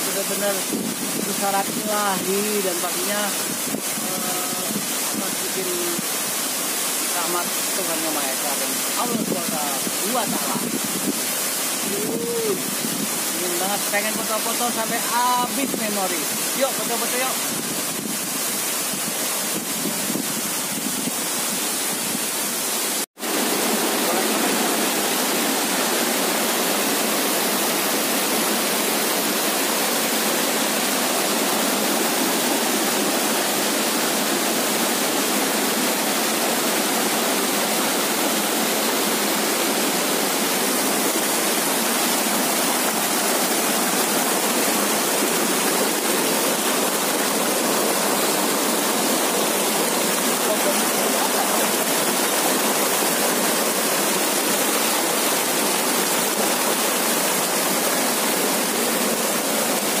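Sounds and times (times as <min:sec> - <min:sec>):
waterfall pouring: 0:00.0 - 1:00.0.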